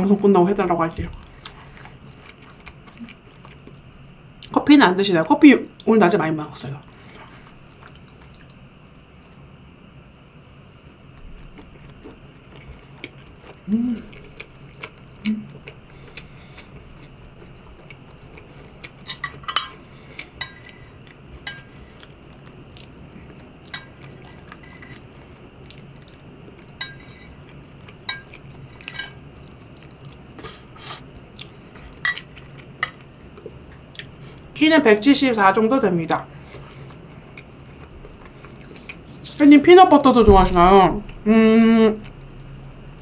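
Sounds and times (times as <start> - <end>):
fork clinking on ceramic platter: 19.1 - 19.8.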